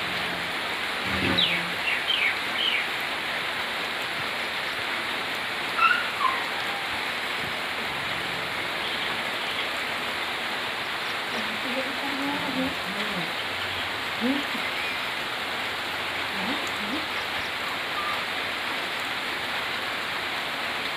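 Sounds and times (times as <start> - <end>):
rain hissing: 0.0 - 20.9
birds calling: 1.0 - 3.0, 5.0 - 15.4, 16.4 - 18.4.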